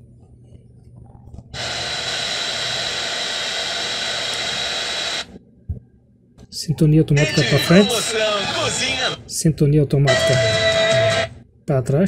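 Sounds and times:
radio static hiss: 0:01.6 - 0:05.4, 0:07.2 - 0:09.2.

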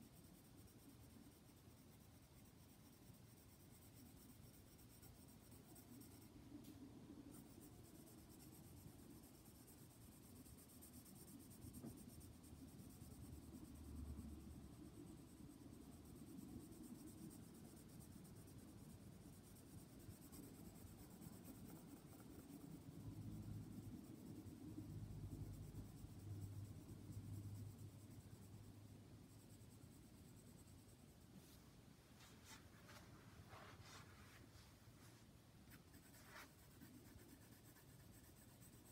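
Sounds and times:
pencil scratching on paper: 0:00.5 - 0:06.3, 0:07.3 - 0:13.8, 0:14.8 - 0:28.6, 0:35.7 - 0:38.9.

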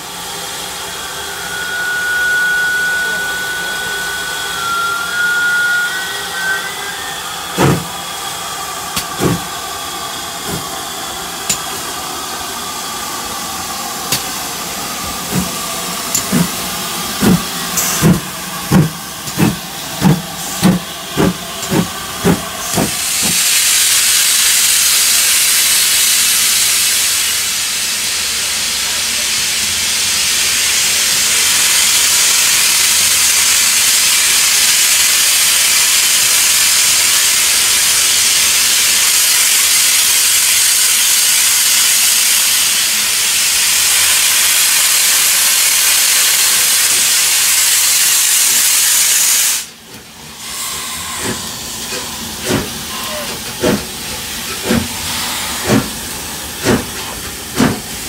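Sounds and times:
loud hiss of steam: 0:00.0 - 0:58.0
steam locomotive exhaust beats: 0:00.0 - 0:58.0.

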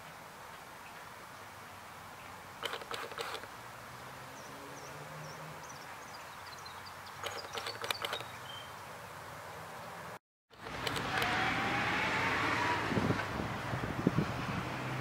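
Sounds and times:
sharp clicks: 0:02.6 - 0:03.5, 0:07.2 - 0:08.4, 0:10.5 - 0:11.4
small birds chirping: 0:04.3 - 0:09.0.

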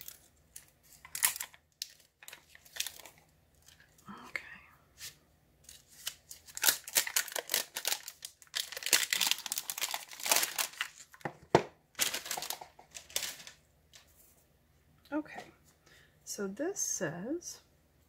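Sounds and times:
plastic wrap crinkling: 0:00.0 - 0:04.0, 0:05.0 - 0:13.6.

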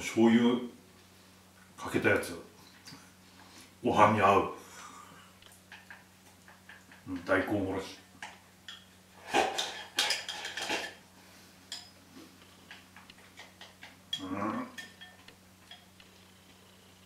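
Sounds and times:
chopsticks clattering on ceramic bowl: 0:12.7 - 0:15.9.

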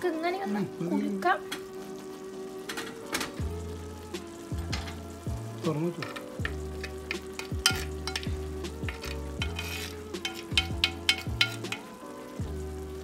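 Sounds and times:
food sizzling: 0:00.0 - 0:13.0
metal spoon scraping clay pot: 0:06.0 - 0:11.9.

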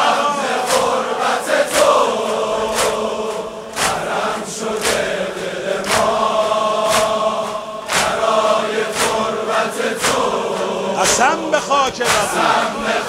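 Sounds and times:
crowd of men chanting: 0:00.0 - 0:13.0
rhythmic chest-beating hand slaps: 0:00.0 - 0:13.0.

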